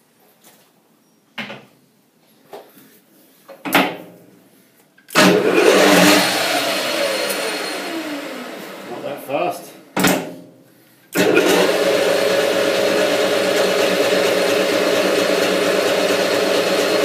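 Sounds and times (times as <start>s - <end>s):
lathe spindle whirring: 5.1s - 9.2s, 11.2s - 17.0s.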